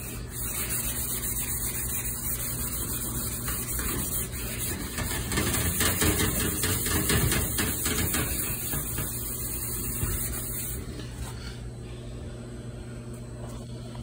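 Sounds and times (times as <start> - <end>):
mechanical hum: 0.0 - 14.0.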